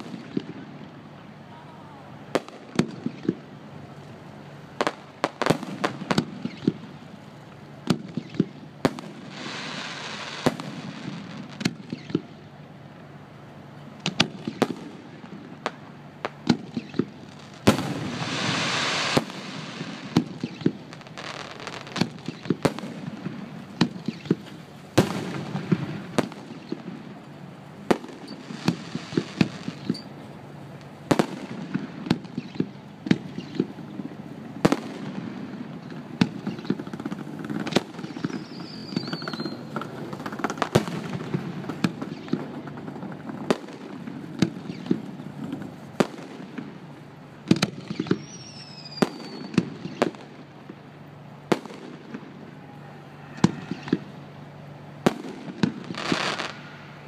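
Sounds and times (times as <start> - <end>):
firework shells bursting: 15.7 - 30.2, 30.8 - 46.8
loud hiss: 17.3 - 22.0.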